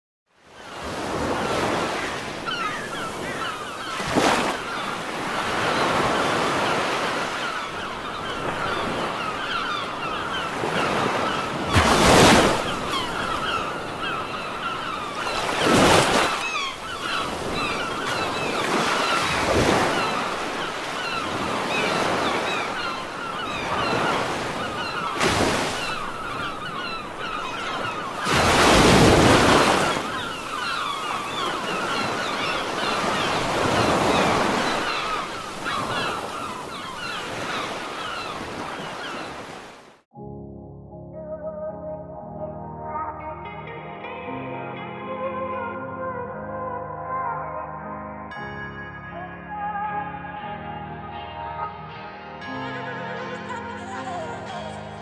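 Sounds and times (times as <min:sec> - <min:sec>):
surf washing ashore: 0:00.5 - 0:40.0
waves breaking: 0:00.5 - 0:40.0.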